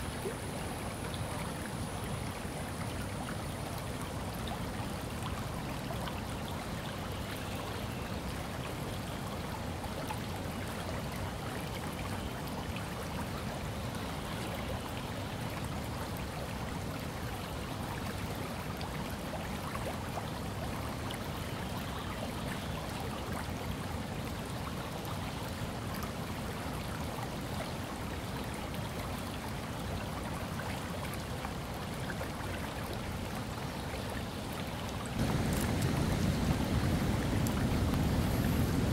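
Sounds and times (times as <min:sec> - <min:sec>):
river rushing over rapids: 0:34.9 - 0:38.9.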